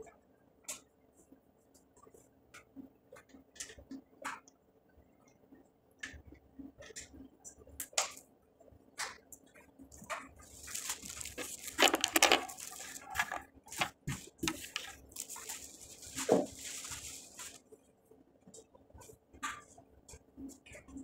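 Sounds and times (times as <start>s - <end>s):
rustling close to microphone: 10.4s - 17.6s.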